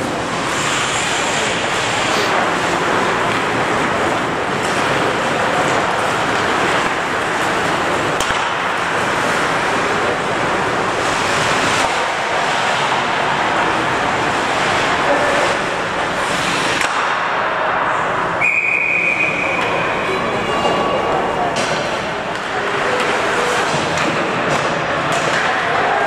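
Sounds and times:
skates scraping ice: 0:00.0 - 0:17.4, 0:19.2 - 0:26.0
hockey rink noise: 0:00.0 - 0:26.0
stick or puck clacks: 0:03.2 - 0:09.8, 0:11.0 - 0:13.0, 0:16.4 - 0:17.4, 0:21.5 - 0:25.9.

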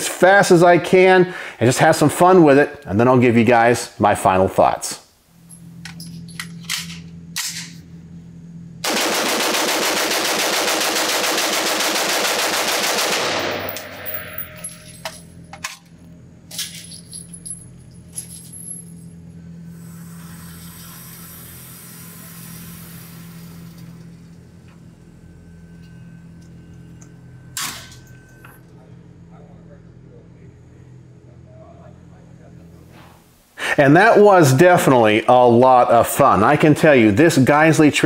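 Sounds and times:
steady hum: 0:00.0 - 0:38.0
rapid pistol shots indoors: 0:08.8 - 0:14.0.

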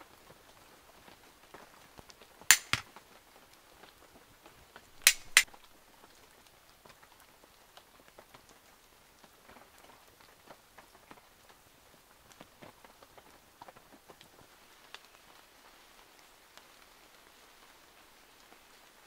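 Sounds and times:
sharp pops of fire: 0:02.5 - 0:02.8, 0:05.0 - 0:05.5.

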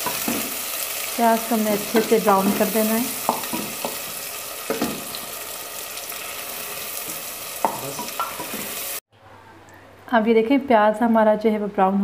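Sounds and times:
onions sizzling in hot oil: 0:00.0 - 0:09.0.

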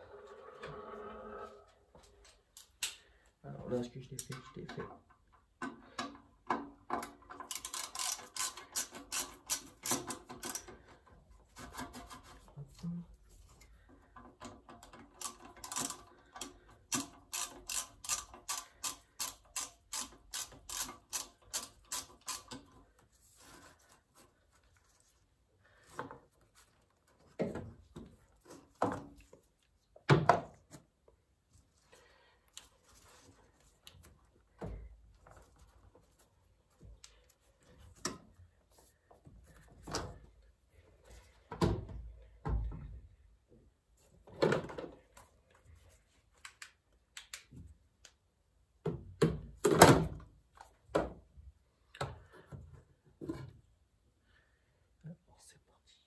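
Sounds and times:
tools knocking and clattering: 0:04.2 - 0:10.8
ratchet wrench clicking: 0:07.5 - 0:10.6, 0:16.9 - 0:22.6.

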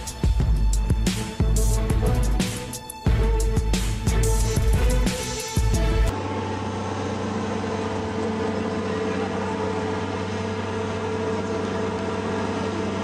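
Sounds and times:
truck diesel engine droning: 0:00.0 - 0:13.0.

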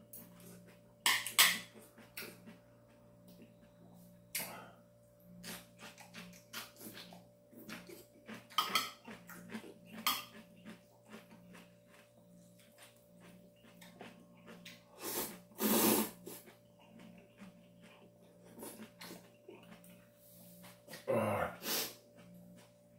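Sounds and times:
chewing: 0:00.2 - 0:04.5, 0:05.3 - 0:21.1, 0:22.0 - 0:22.9
slurping noodles: 0:14.9 - 0:16.6, 0:21.6 - 0:22.0.

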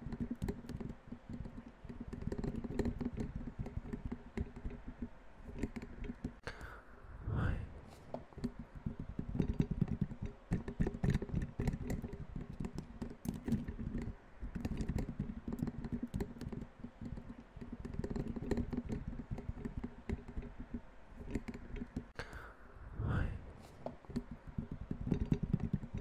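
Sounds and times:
rapid dull tapping: 0:00.0 - 0:06.4, 0:08.1 - 0:22.2, 0:23.8 - 0:26.0.

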